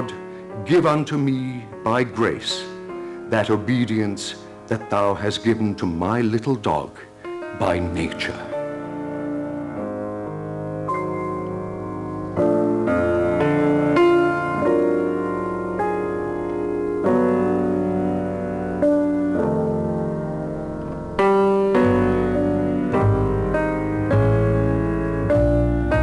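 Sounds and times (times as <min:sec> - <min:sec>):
slow solo piano chords: 0:07.1 - 0:26.0.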